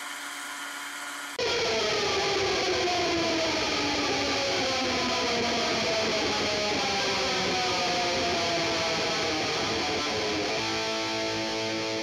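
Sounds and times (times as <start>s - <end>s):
electric guitar music: 1.4s - 12.0s.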